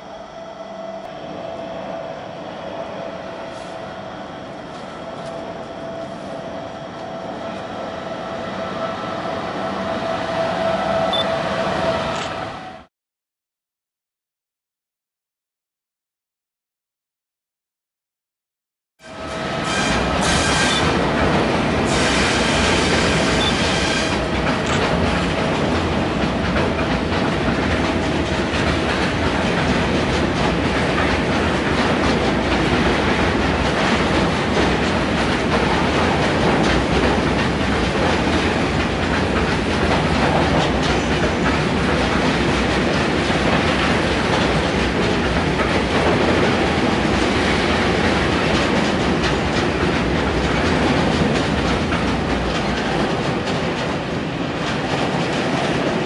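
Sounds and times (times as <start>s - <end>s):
high whine of steady tones: 0.0s - 8.9s
train passing close by: 0.0s - 12.9s, 19.0s - 56.0s.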